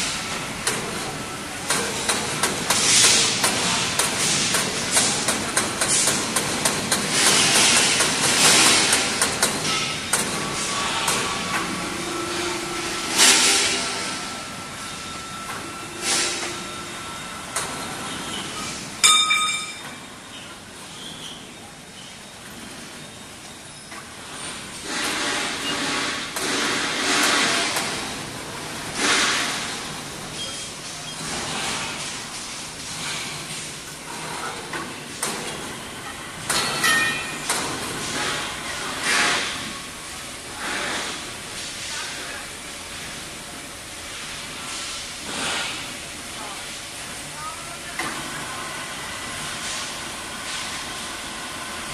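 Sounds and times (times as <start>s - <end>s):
steel pipes clanking: 0.0s - 20.4s, 36.4s - 39.6s
workshop noise: 0.0s - 51.9s
metallic ring: 19.0s - 20.1s, 36.6s - 37.5s.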